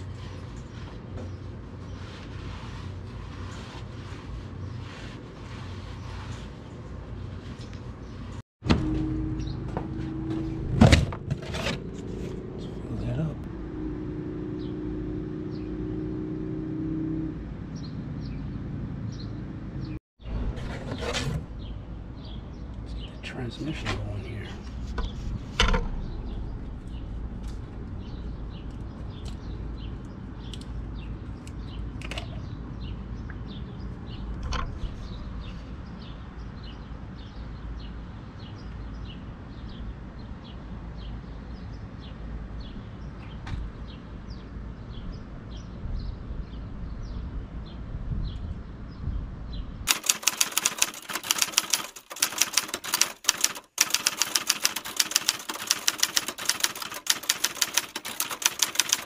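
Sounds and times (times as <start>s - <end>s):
typewriter key clacking: 49.9s - 59.0s.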